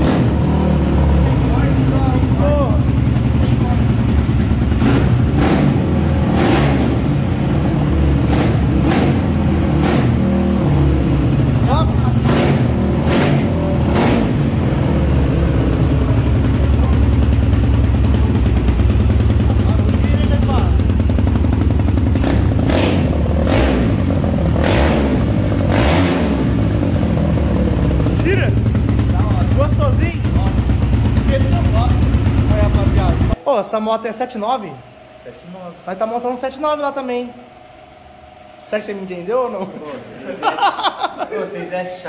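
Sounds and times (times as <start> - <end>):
motorcycle engine revving: 0.0 - 33.4.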